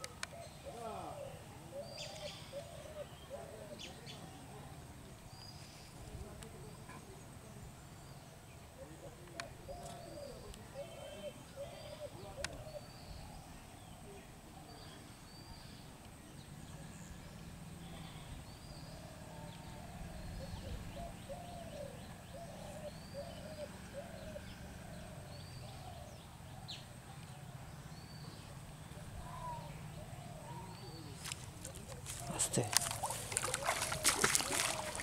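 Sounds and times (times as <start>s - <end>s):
birds calling low notes: 8.1s - 35.0s.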